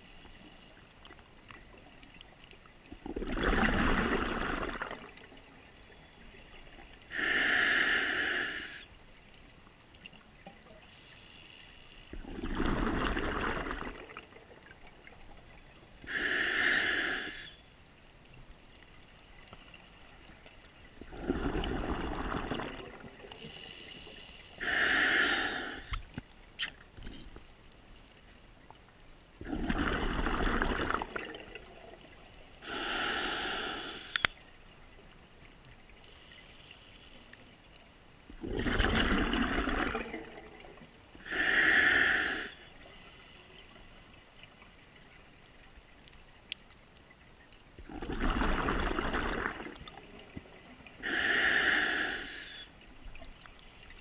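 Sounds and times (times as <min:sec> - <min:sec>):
regulator inhale hiss: 0:00.0 - 0:00.8, 0:07.1 - 0:08.9, 0:10.8 - 0:12.2, 0:16.0 - 0:17.7, 0:23.3 - 0:26.0, 0:32.6 - 0:34.3, 0:36.0 - 0:37.6, 0:41.2 - 0:44.3, 0:51.0 - 0:54.0
exhaled bubbles rushing: 0:03.0 - 0:05.3, 0:12.2 - 0:14.6, 0:21.0 - 0:23.3, 0:29.4 - 0:32.0, 0:38.3 - 0:40.8, 0:47.8 - 0:50.4.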